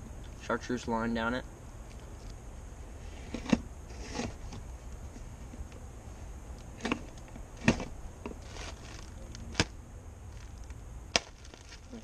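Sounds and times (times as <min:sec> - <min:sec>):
low steady rumble: 0:00.0 - 0:12.0
cardboard box rustling: 0:07.6 - 0:09.7, 0:11.2 - 0:12.0.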